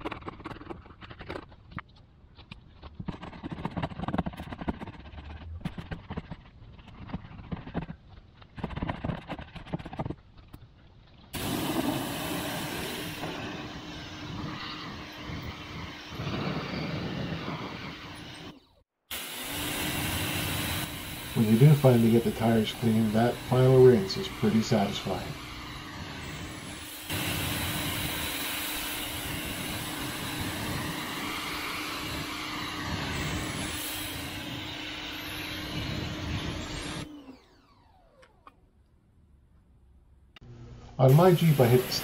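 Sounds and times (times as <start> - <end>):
pressure washer spraying: 11.4 - 37.1, 41.0 - 42.0
brush scrubbing a tire: 20.0 - 34.6.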